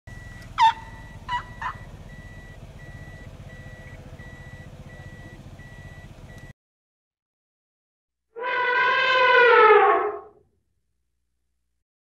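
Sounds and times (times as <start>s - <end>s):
low steady rumble: 0.1s - 6.5s
animal calls sliding down: 8.4s - 10.4s.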